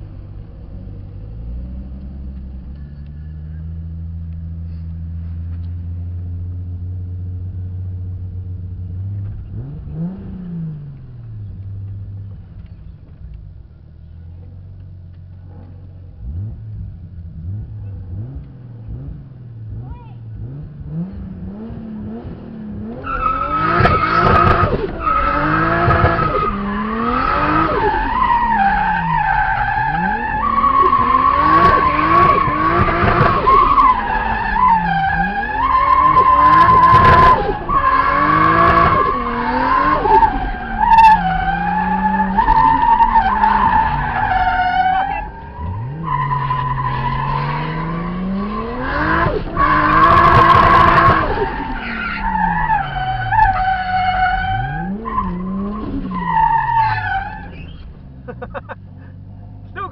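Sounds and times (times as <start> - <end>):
car engine revving: 0.0 - 59.9
tyres squealing and skidding: 22.8 - 59.9.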